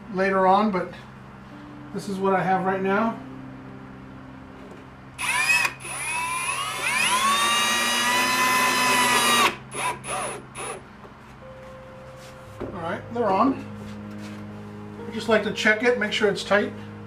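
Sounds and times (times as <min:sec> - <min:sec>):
cordless drill whining: 0:05.2 - 0:10.8
drill trigger bursts: 0:05.2 - 0:10.8.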